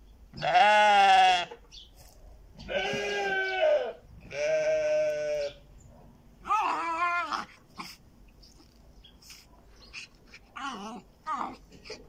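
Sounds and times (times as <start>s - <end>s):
dog whining: 6.4s - 8.0s, 9.9s - 12.0s.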